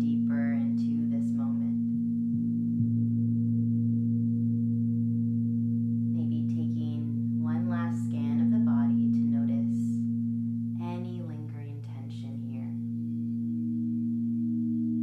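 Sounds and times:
rimmed bowl high tone: 0:00.0 - 0:15.0
crystal singing bowls ringing: 0:12.8 - 0:15.0.

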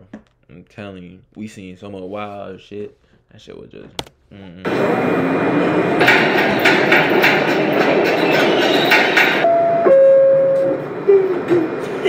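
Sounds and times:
subway car rumbling: 0:04.7 - 0:12.0
wheels rattling and clacking: 0:06.0 - 0:09.4.

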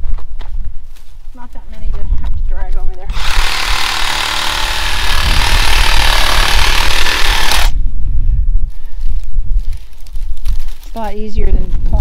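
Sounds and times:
power tool cutting brush: 0:03.1 - 0:07.8.

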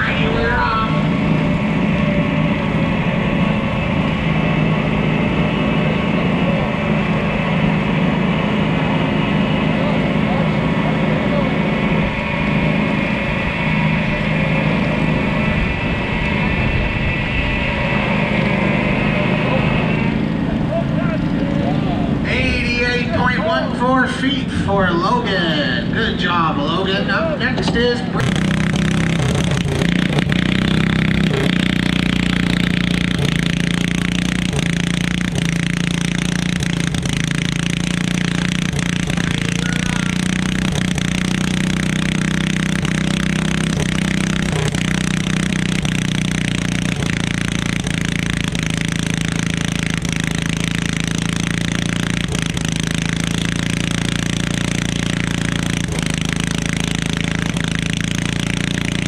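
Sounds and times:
small tractor engine running: 0:00.0 - 0:59.0.

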